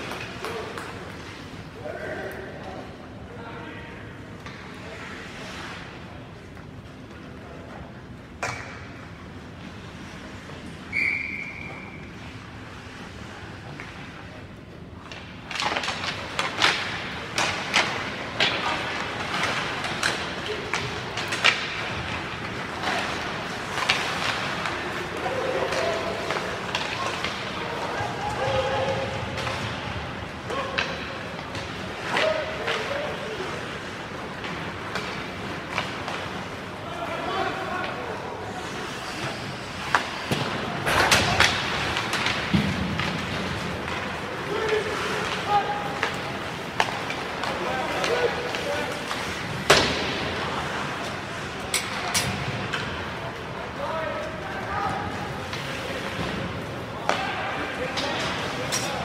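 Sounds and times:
hockey sticks clacking: 0.0 - 2.9, 4.4 - 59.0
skate blades scraping ice: 15.2 - 53.2.

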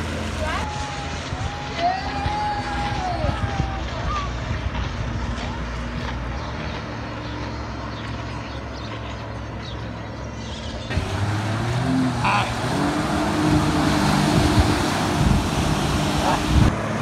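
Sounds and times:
jet ski engines: 0.0 - 17.0
water spray hissing: 10.9 - 16.7.

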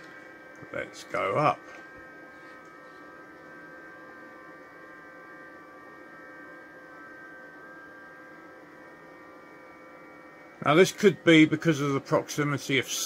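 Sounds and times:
electrical hum: 0.0 - 13.0
faint steady whining tones: 0.0 - 13.0.

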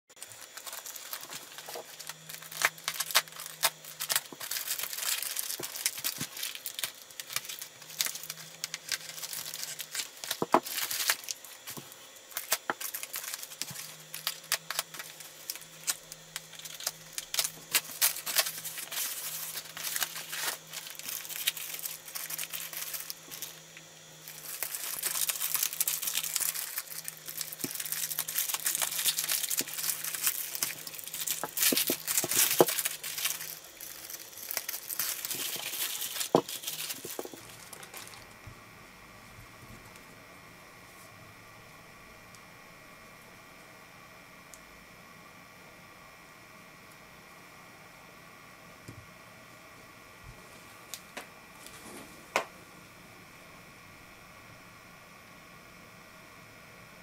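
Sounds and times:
plastic mailer crinkling: 0.1 - 38.4
plastic bag crinkling: 0.2 - 38.4
plastic tearing: 0.2 - 38.4.

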